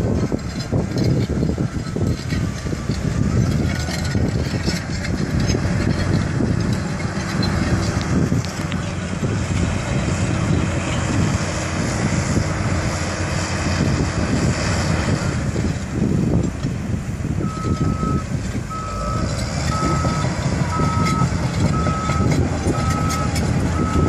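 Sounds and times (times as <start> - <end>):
bulldozer diesel engine running: 0.0 - 24.0
reversing alarm beeps: 17.4 - 24.0.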